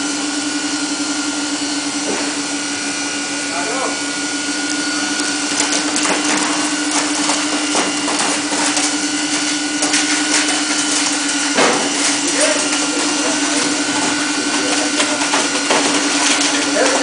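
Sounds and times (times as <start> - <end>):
gas stove burners hissing: 0.0 - 17.0
crackles: 4.6 - 17.0.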